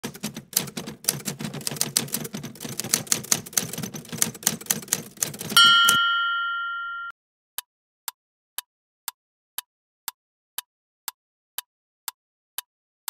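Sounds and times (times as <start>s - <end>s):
typewriter key clacks: 0.0s - 6.0s
typewriter bell ding: 0.0s - 7.1s.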